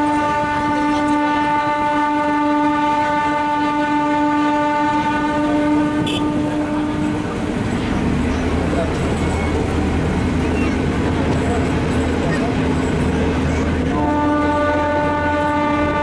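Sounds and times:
train horn blast: 0.0 - 7.5, 13.8 - 16.0
moving train running: 0.0 - 16.0.

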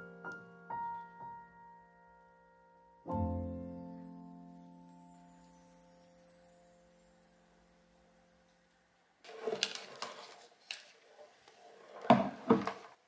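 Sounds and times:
knocks and clatters of handling: 9.3 - 13.0.

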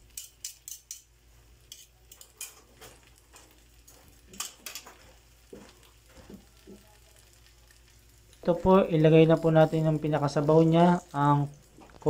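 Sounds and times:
faint sizzling: 0.0 - 12.0
metal fork clicking on frying pan: 0.1 - 1.1, 1.7 - 2.6, 4.3 - 4.9.

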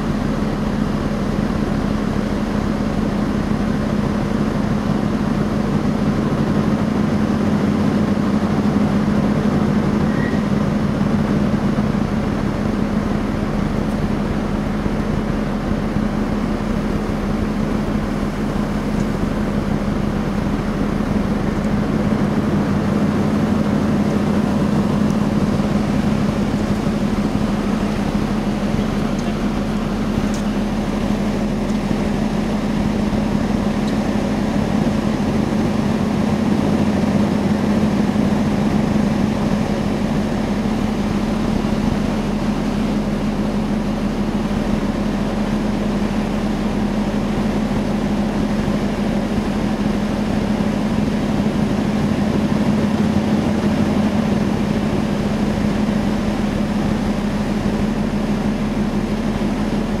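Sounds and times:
ferry engines droning: 0.0 - 60.0.

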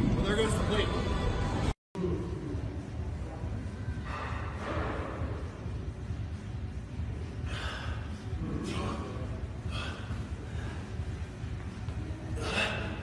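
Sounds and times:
steady low hum: 0.0 - 13.0
man gasping breaths: 7.4 - 8.4, 9.4 - 11.1.

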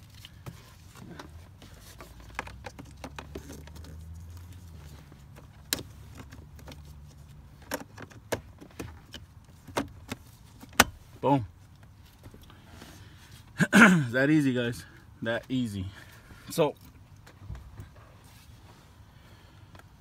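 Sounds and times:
plastic scraping and rattling: 0.8 - 10.7.

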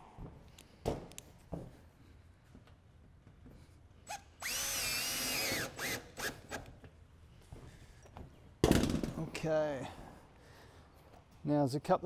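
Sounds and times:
cordless drill whining: 4.1 - 6.7.

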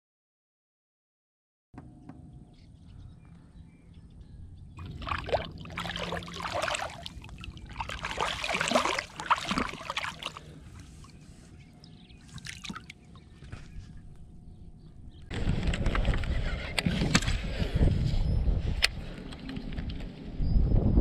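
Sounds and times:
fish splashing in water: 4.8 - 11.1, 12.3 - 13.0.

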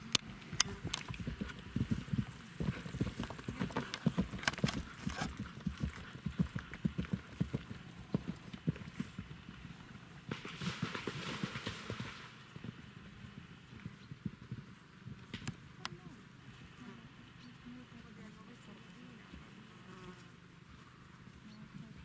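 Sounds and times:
horse hoofbeats on grass: 0.0 - 16.7, 17.7 - 22.0.

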